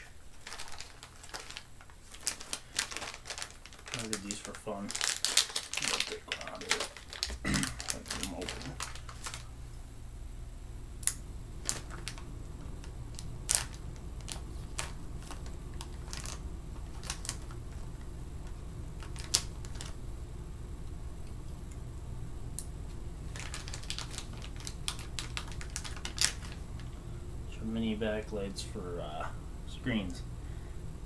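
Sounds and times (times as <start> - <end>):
steady low hum: 0.0 - 31.0
plastic packaging clicks and crinkles: 0.3 - 9.5, 11.0 - 20.0, 23.3 - 26.9.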